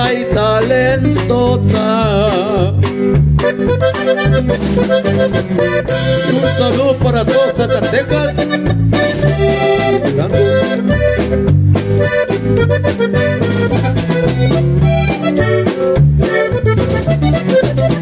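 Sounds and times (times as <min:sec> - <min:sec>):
accordion melody: 0:00.0 - 0:18.0
bass notes: 0:00.0 - 0:18.0.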